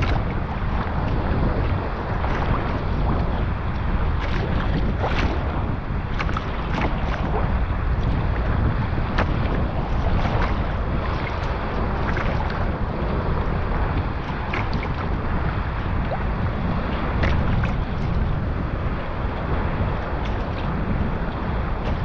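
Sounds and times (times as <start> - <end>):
paddle splashing water: 0.0 - 22.0
wind buffeting microphone: 0.0 - 22.0.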